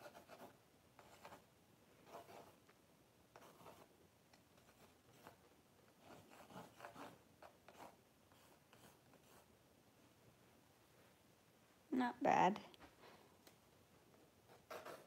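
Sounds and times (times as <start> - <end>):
pencil scratching on board: 0.0 - 2.6, 3.3 - 3.9, 4.6 - 5.4, 6.0 - 9.5, 14.5 - 15.0.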